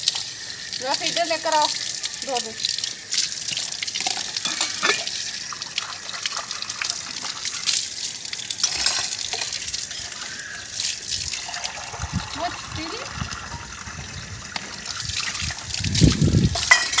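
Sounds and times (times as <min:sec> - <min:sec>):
water splashing from tap: 0:00.0 - 0:17.0
steel dishes clinking: 0:04.1 - 0:05.2, 0:08.6 - 0:09.6, 0:16.6 - 0:17.0.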